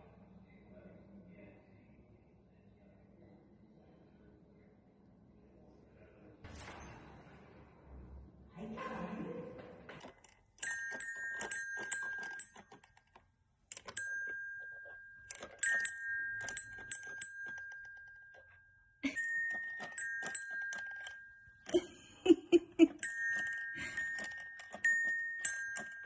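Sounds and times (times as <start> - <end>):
toy xylophone notes ringing: 10.6 - 22.0, 22.8 - 26.0.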